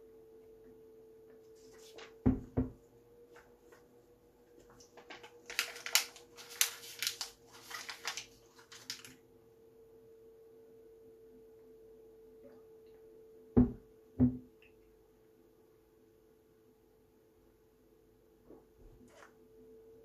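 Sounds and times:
faint hum: 0:00.0 - 0:20.0
paper crinkling: 0:01.6 - 0:02.2, 0:04.5 - 0:09.2.

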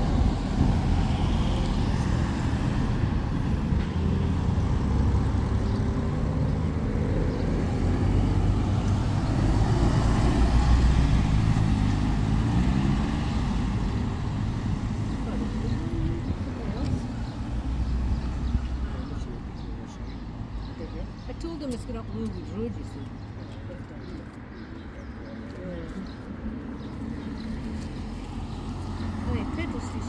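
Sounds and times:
vehicle engines passing: 0:00.0 - 0:30.0.

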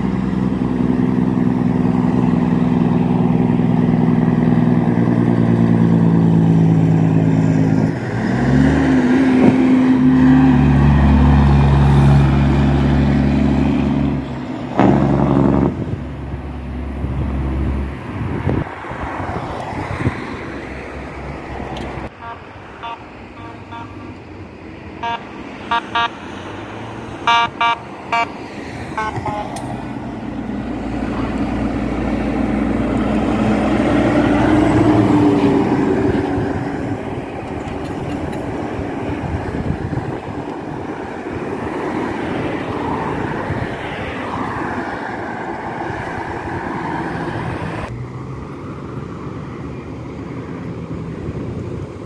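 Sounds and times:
heavy truck engine approaching: 0:00.0 - 0:52.0
truck diesel engine passing: 0:00.0 - 0:52.0
vehicle horn short toots: 0:22.1 - 0:24.2, 0:25.0 - 0:26.2, 0:27.3 - 0:28.3, 0:29.0 - 0:29.7.

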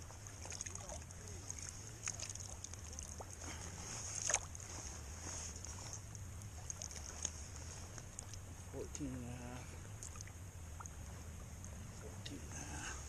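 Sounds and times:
water splashing and dripping: 0:00.0 - 0:03.4, 0:04.2 - 0:04.6, 0:10.0 - 0:11.0
steady low hum: 0:00.0 - 0:13.0
sharp splash: 0:00.4 - 0:03.2, 0:04.1 - 0:04.6.

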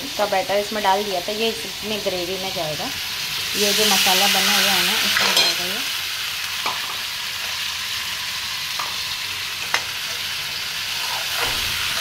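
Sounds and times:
batter sizzling in a pan: 0:00.1 - 0:12.0
steel spoon clinking on pan: 0:05.2 - 0:05.7.

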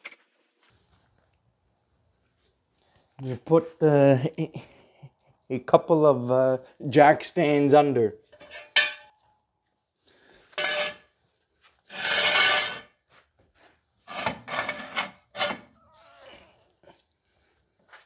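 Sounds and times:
metal scraping and clanking: 0:08.3 - 0:09.2, 0:10.5 - 0:11.0, 0:11.9 - 0:12.9, 0:14.0 - 0:15.7.

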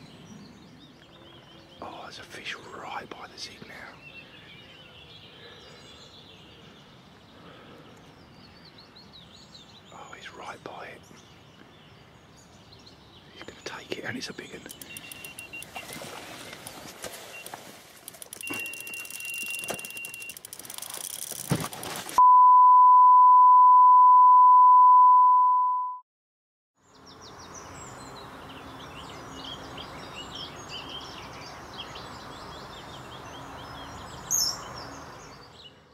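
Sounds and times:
steady outdoor hiss: 0:00.0 - 0:22.2, 0:26.8 - 0:35.9
short bird chirps: 0:14.4 - 0:15.9, 0:18.3 - 0:21.0
clicks: 0:14.6 - 0:15.8, 0:17.4 - 0:22.2
steady test-tone beep: 0:14.8 - 0:15.7, 0:18.4 - 0:20.4, 0:22.2 - 0:26.0
small water splashes: 0:15.2 - 0:19.9.

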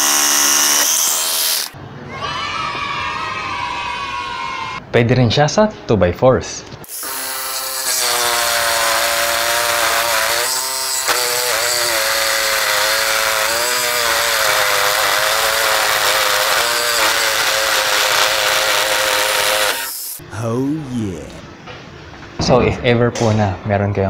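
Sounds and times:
jigsaw cutting wood: 0:00.0 - 0:01.8, 0:06.9 - 0:20.2.

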